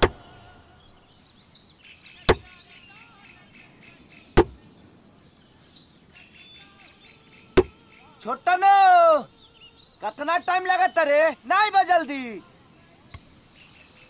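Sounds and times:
axe chopping log: 0:00.0 - 0:00.3, 0:02.3 - 0:02.5, 0:04.4 - 0:04.6, 0:07.6 - 0:07.8
faint bird chirps: 0:00.0 - 0:14.0.

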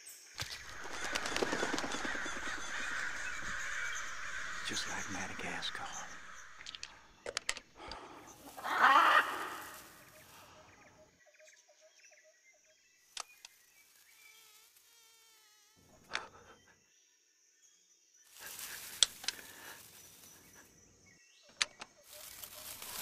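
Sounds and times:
insects: 0:00.0 - 0:23.0
wavering chirping calls: 0:00.4 - 0:11.5
sharp clicks: 0:06.6 - 0:08.1.

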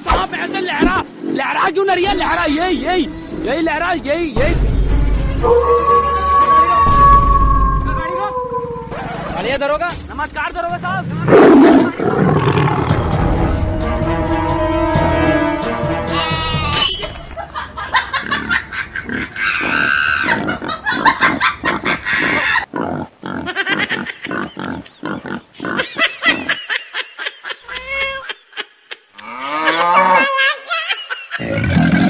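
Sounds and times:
comic animal calls: 0:16.1 - 0:17.4, 0:18.1 - 0:22.7, 0:29.1 - 0:30.7.

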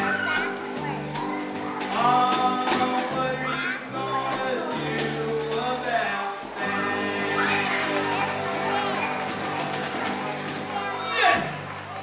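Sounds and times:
electric guitar strumming: 0:00.0 - 0:12.0
man singing: 0:01.9 - 0:08.1.

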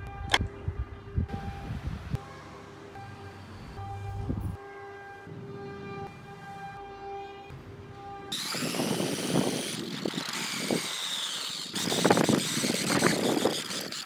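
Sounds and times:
radio-controlled car motor whining: 0:08.3 - 0:14.0
rough grinding rolling noise: 0:08.3 - 0:14.0.

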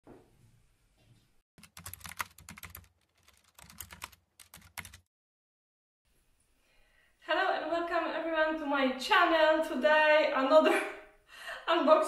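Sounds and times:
rapid irregular clicking: 0:01.6 - 0:05.0.

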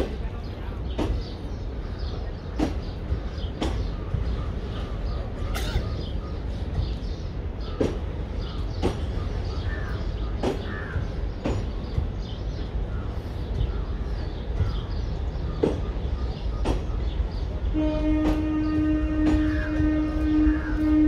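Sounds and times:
low rumble of train station: 0:00.0 - 0:21.0
crows cawing: 0:09.6 - 0:11.2.

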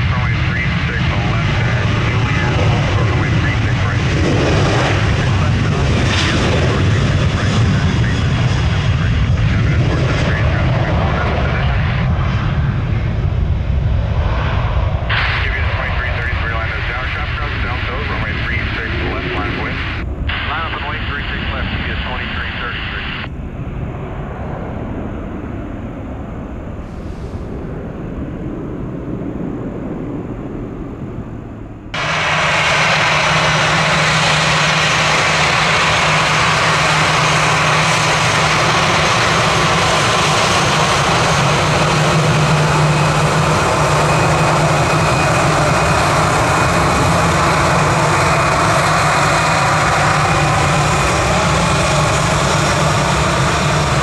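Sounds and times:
jet engine roar: 0:00.0 - 0:54.0
low hum: 0:00.0 - 0:54.0.

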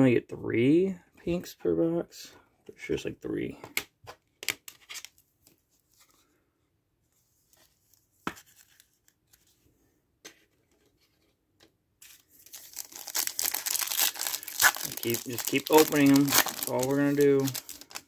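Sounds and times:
wrapper crinkling and tearing: 0:12.0 - 0:18.0.

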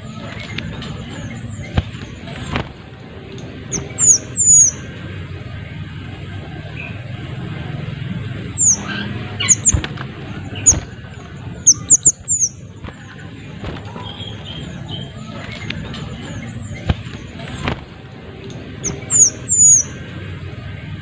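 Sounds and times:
bird calling high notes: 0:11.6 - 0:12.7, 0:18.9 - 0:20.0.

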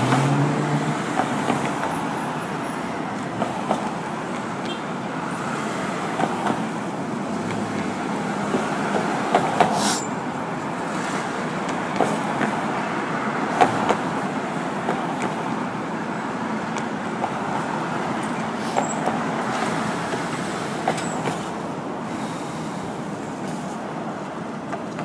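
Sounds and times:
city street traffic: 0:00.0 - 0:25.0.

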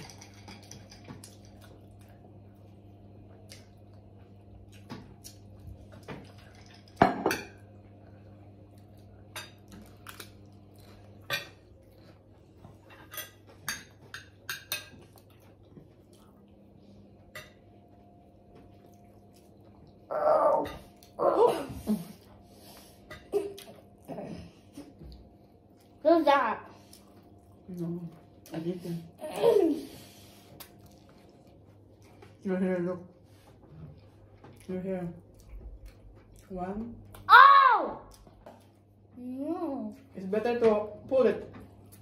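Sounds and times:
faint hum: 0:00.0 - 0:40.3
cutlery clinking on plates: 0:12.8 - 0:15.1.

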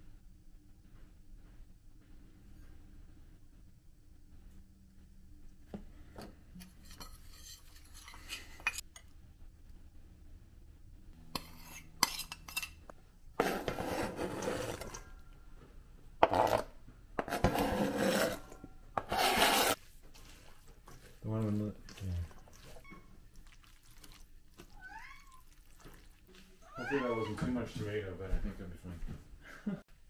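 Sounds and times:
metal spoon scraping ceramic bowl: 0:06.6 - 0:08.8, 0:11.3 - 0:15.1, 0:16.2 - 0:19.8
scraping into steel bowl: 0:06.6 - 0:08.8, 0:11.3 - 0:15.2, 0:16.2 - 0:24.8.

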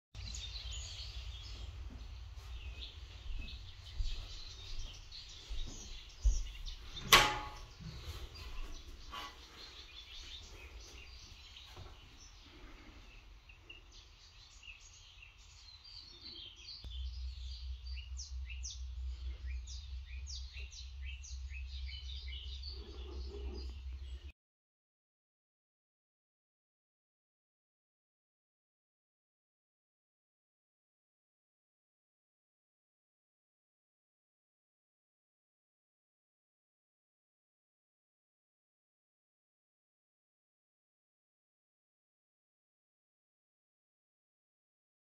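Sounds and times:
small birds chirping: 0:00.2 - 0:24.3
sharp knock: 0:07.0 - 0:07.7
low rumble: 0:16.8 - 0:24.3.

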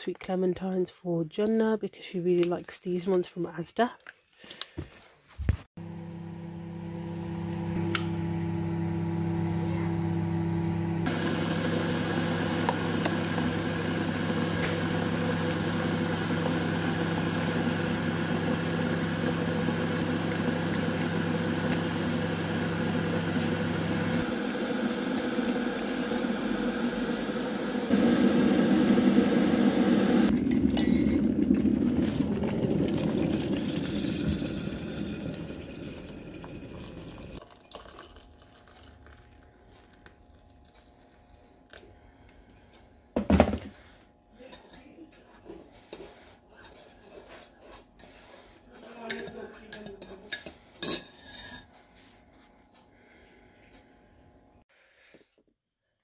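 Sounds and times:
electric kettle heating: 0:05.8 - 0:41.8
kettle switching off: 0:07.2 - 0:09.5, 0:10.6 - 0:37.4
water bubbling: 0:31.2 - 0:37.4.

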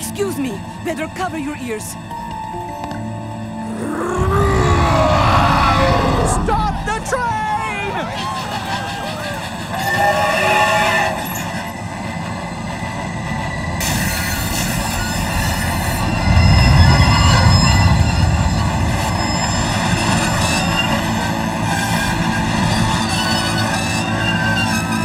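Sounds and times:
low rumble: 0:03.5 - 0:08.1, 0:12.6 - 0:23.0
steel wheels squealing on rails: 0:04.3 - 0:25.0.

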